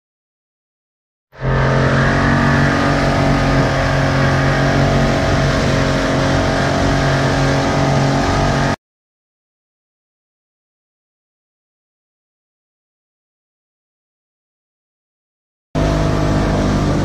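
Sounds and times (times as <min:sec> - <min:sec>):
outboard motor running: 0:01.4 - 0:08.8, 0:15.8 - 0:17.0
water rushing from boat wake: 0:01.4 - 0:08.8, 0:15.8 - 0:17.0.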